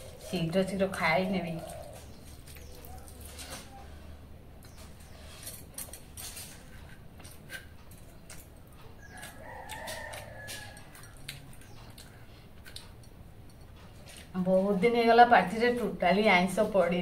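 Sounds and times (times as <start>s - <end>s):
rooster crowing: 9.0s - 11.2s.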